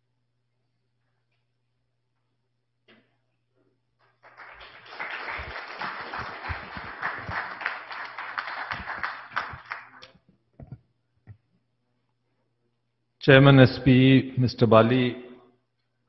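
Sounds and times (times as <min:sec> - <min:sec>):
audience applauding: 0:04.0 - 0:10.1.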